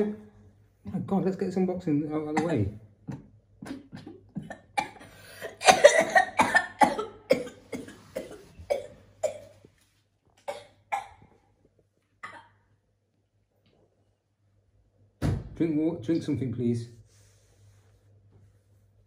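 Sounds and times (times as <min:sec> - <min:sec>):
boy coughing: 0:02.3 - 0:02.8, 0:03.6 - 0:09.6, 0:10.4 - 0:11.3.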